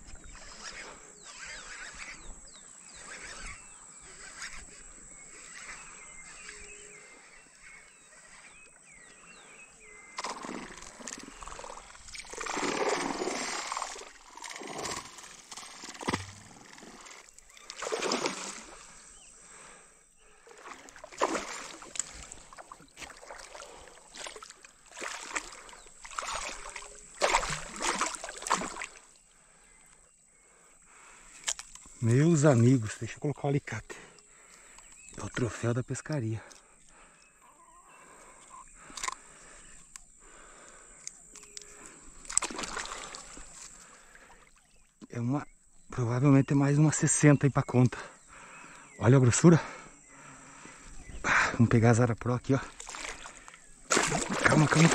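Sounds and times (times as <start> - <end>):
fish thrashing and splashing: 10.2 - 19.0, 20.5 - 29.1, 41.4 - 43.6, 52.7 - 54.9.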